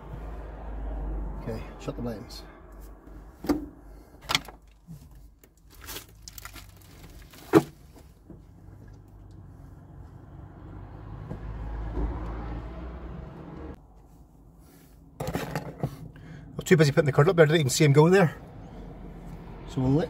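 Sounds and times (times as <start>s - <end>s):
car engine pulling away: 8.8s - 13.8s.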